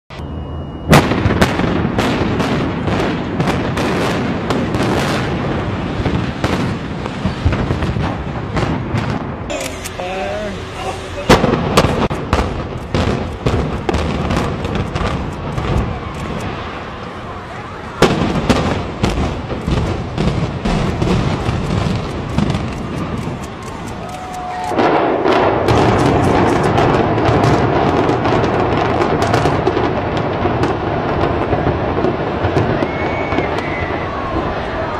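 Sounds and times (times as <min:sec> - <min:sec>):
short steady tone: 0:00.1 - 0:00.9, 0:09.5 - 0:12.0
continuous rumble: 0:07.4 - 0:32.6
demolition charges firing: 0:11.2 - 0:16.9, 0:18.0 - 0:34.6
sharp cracks: 0:11.3 - 0:16.6, 0:18.1 - 0:27.6.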